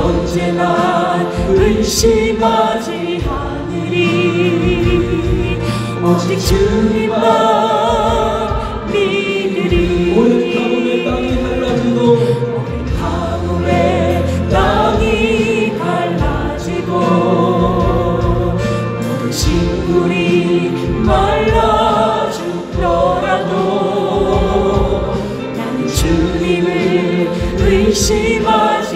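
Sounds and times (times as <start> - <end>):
gospel choir singing: 0.0 - 28.9
instrumental accompaniment: 0.0 - 28.9.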